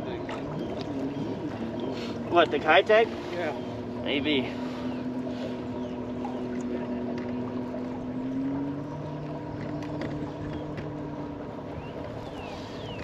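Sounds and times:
water lapping: 0.0 - 13.0
wind: 0.0 - 13.0.

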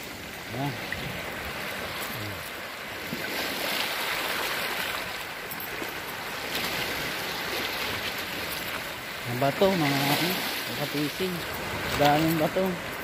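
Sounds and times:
sea waves washing over rocks: 0.0 - 13.0.

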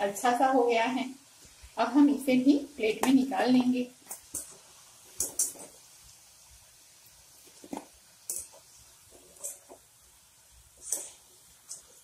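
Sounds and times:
potatoes deep frying in oil: 0.0 - 12.0.

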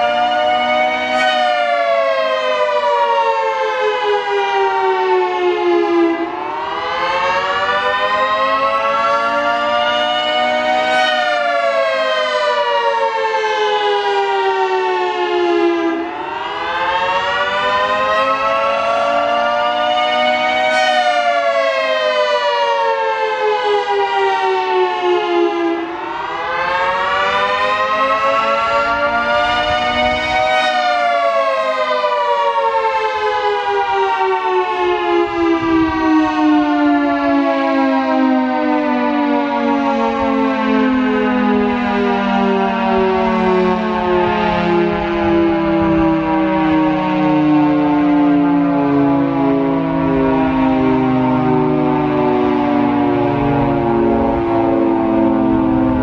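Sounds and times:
warning siren wailing: 0.0 - 56.0
warning siren winding: 26.1 - 37.8.

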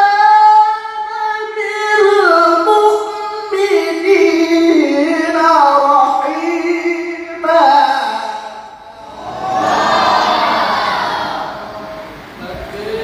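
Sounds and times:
man reciting in melodic chant: 0.0 - 9.0.

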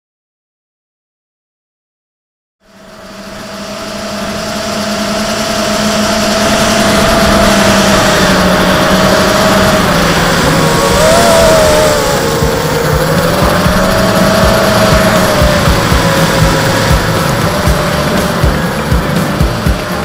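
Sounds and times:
quadcopter motors whining: 2.6 - 20.0
wind rushing: 4.0 - 20.0.

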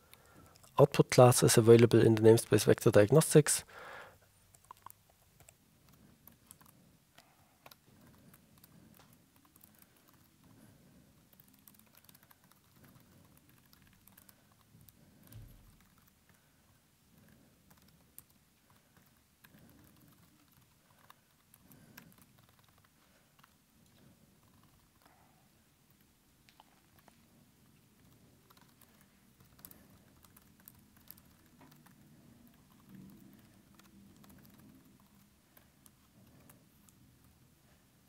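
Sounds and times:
typing on computer keyboard: 4.5 - 10.6, 11.2 - 16.5, 17.2 - 23.6, 28.0 - 37.4.

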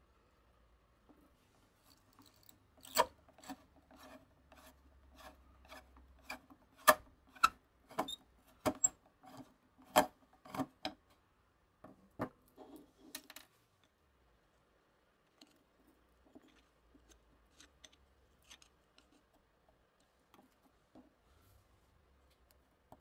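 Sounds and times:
screwdriver scraping in screw slot: 2.8 - 4.1.

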